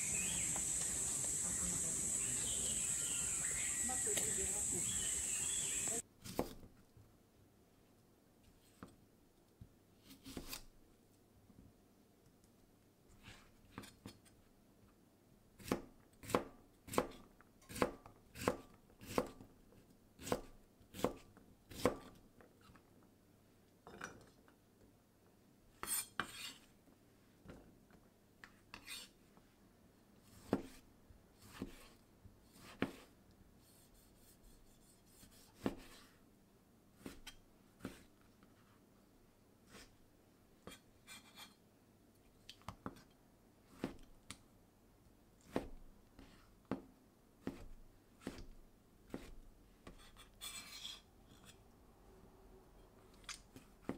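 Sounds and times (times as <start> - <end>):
knife chopping on cutting board: 31.4 - 31.9, 35.5 - 36.0, 45.5 - 45.8, 47.4 - 48.5, 49.1 - 50.1.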